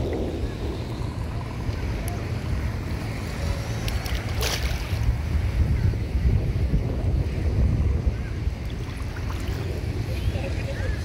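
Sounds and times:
sea water lapping at shore: 0:00.0 - 0:05.6, 0:08.5 - 0:11.0
wind buffeting microphone: 0:00.0 - 0:11.0.

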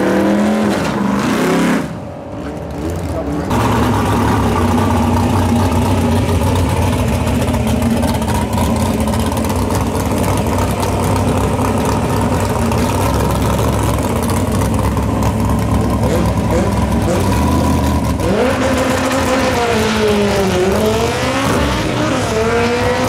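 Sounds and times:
car engine idling loudly: 0:02.5 - 0:18.4.

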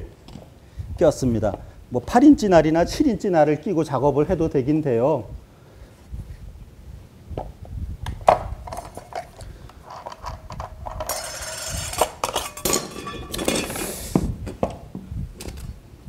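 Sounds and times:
metal tool parts clinking: 0:08.7 - 0:13.9.

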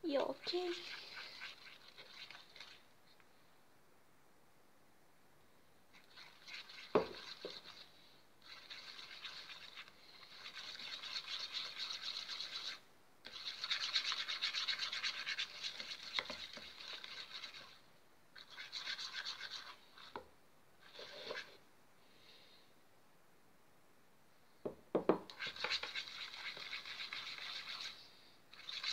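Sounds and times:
plastic stick scraping bowl: 0:00.1 - 0:02.9, 0:06.0 - 0:21.6, 0:25.3 - 0:28.9.

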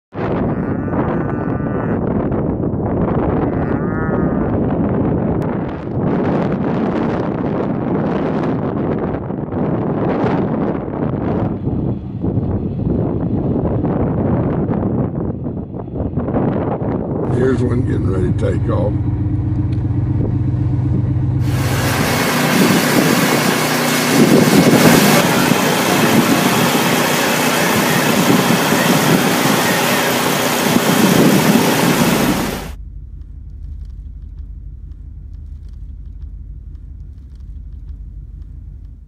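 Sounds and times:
vehicle engine running: 0:17.2 - 0:39.0
loud rushing noise: 0:21.4 - 0:32.8.

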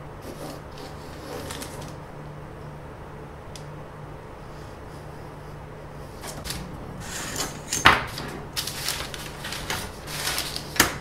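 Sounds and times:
paper rustling: 0:00.2 - 0:02.0, 0:06.2 - 0:11.0.

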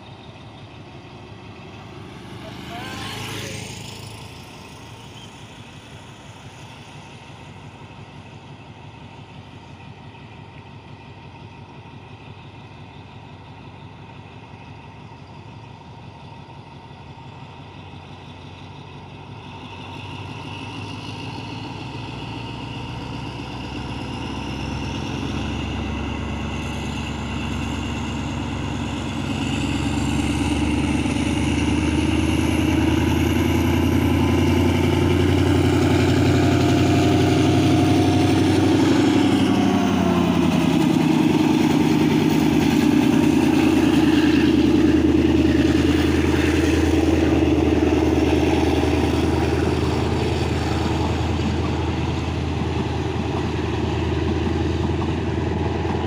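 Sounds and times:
diesel locomotive engine running: 0:00.0 - 0:56.0
motor scooter passing: 0:02.0 - 0:04.0.

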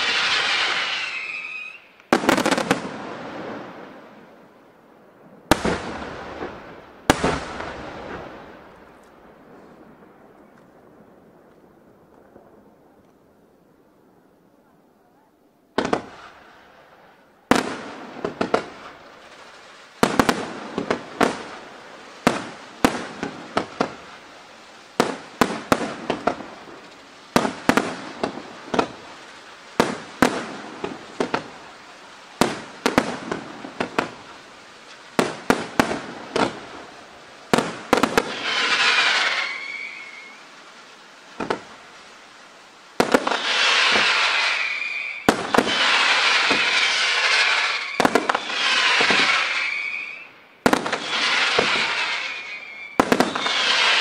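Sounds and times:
firework falling whistle: 0:00.0 - 0:02.7, 0:38.0 - 0:40.5, 0:43.1 - 0:54.0
firework hissing crackle: 0:00.0 - 0:13.0, 0:15.8 - 0:54.0
firework shells bursting: 0:37.5 - 0:40.4, 0:43.0 - 0:54.0.

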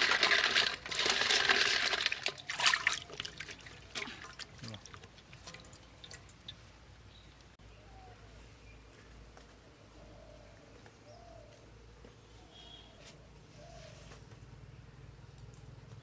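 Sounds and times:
water splashing in a basin: 0:00.0 - 0:06.8
water dripping: 0:00.0 - 0:07.6.

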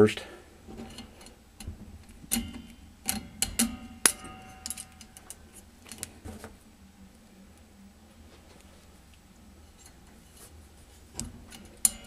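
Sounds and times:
metal clinks and taps: 0:00.8 - 0:06.1.

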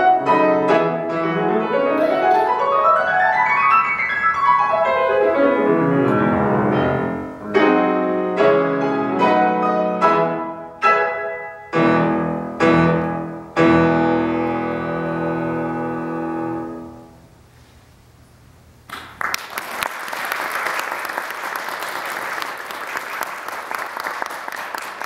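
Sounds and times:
piano chord ringing: 0:00.0 - 0:17.2
audience applause: 0:18.9 - 0:25.0.

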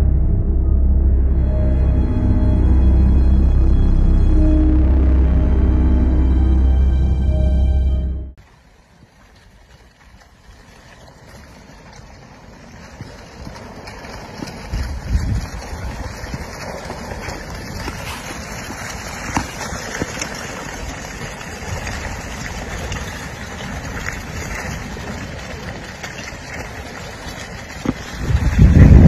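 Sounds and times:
lava flow rushing: 0:08.4 - 0:29.0
lava blocks clicking and cracking: 0:09.1 - 0:29.0.

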